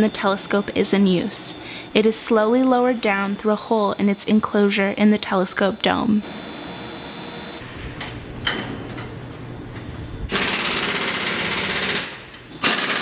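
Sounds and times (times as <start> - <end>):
low steady hum: 0.0 - 10.3.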